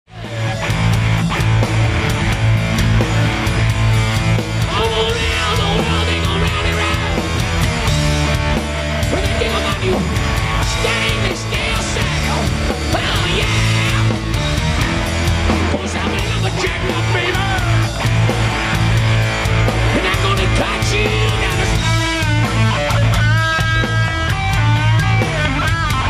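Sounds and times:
driving drum beat: 0.1s - 26.0s
hard rock band playing: 0.1s - 26.0s.

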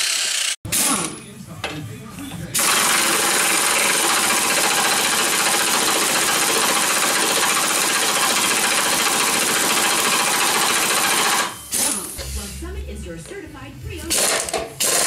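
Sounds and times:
impact wrench rattling: 2.6s - 11.9s, 14.1s - 15.0s.

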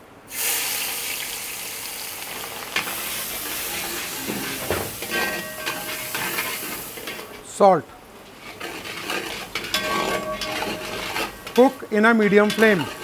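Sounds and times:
onions sizzling in oil: 0.3s - 7.6s
spatula scraping a pan: 2.8s - 7.5s, 8.2s - 13.0s.

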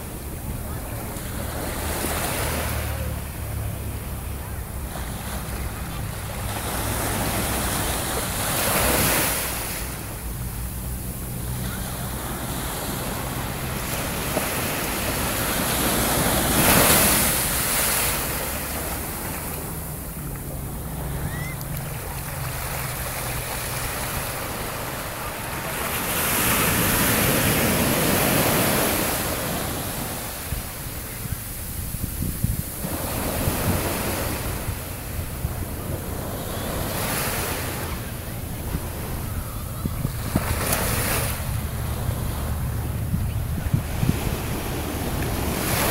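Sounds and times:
surf breaking on beach: 11.1s - 45.9s
wind on microphone: 26.5s - 36.2s, 36.8s - 45.9s.

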